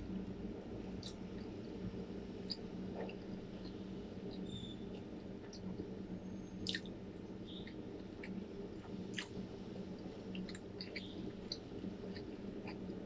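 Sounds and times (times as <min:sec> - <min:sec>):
steady low hum: 0:00.0 - 0:13.0
wet chewing mouth clicks: 0:06.6 - 0:06.9, 0:09.0 - 0:09.4, 0:10.3 - 0:13.0.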